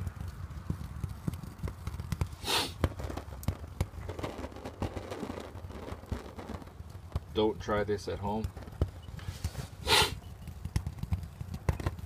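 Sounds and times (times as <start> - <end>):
short breathy rush: 2.4 - 2.8, 9.1 - 10.2.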